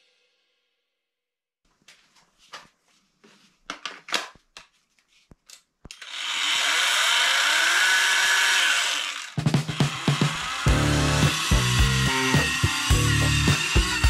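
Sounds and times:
trim router motor running: 6.0 - 14.0.

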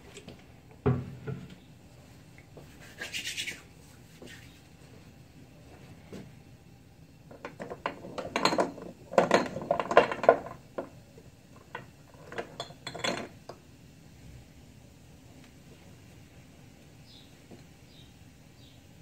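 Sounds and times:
kitchenware knocking and clinking: 7.3 - 10.9, 11.7 - 13.3.

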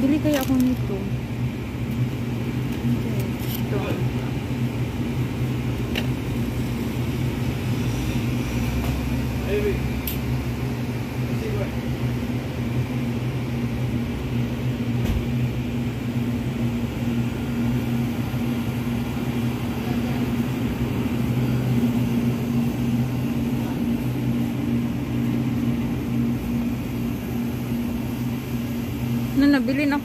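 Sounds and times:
refrigerator electrical hum: 0.0 - 30.0.

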